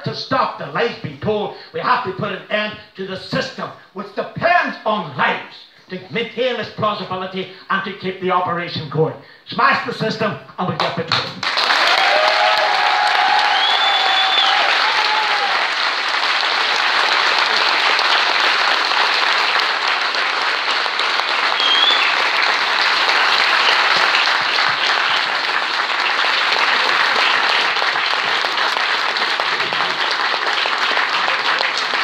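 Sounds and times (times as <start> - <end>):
audience applauding: 11.1 - 32.0.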